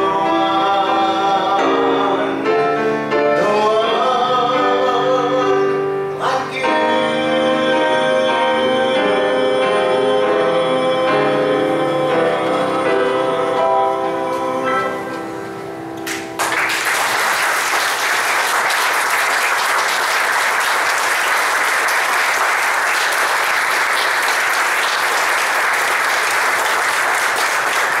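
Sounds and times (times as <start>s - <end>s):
held keyboard chord: 0.0s - 16.6s
audience applause: 16.1s - 28.0s.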